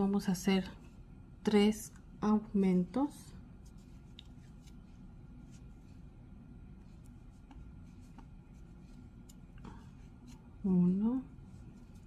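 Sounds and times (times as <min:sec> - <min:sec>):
low room hum: 0:00.0 - 0:12.0
yarn rustling with crochet hook: 0:03.5 - 0:12.0.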